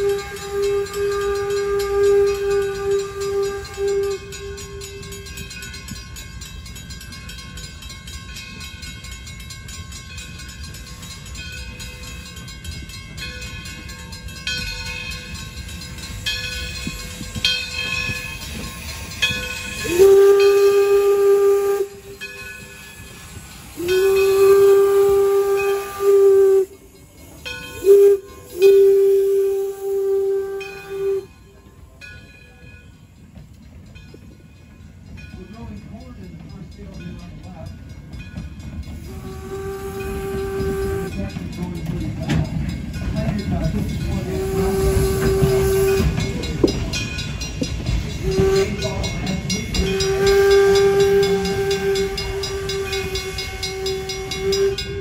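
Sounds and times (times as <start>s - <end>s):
steam whistle blasts: 0.0s - 5.4s, 18.6s - 31.6s, 39.0s - 41.4s, 44.2s - 46.5s, 48.2s - 55.0s
steam locomotive rumble and hiss: 0.0s - 55.0s.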